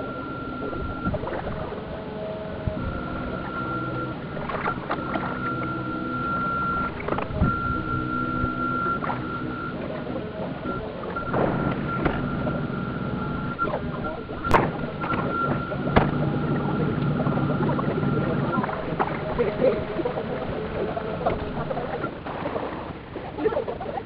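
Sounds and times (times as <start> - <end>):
high electric motor whine: 0.0 - 22.2
low humming tones: 0.0 - 24.0
clicks and knocks: 14.4 - 16.3.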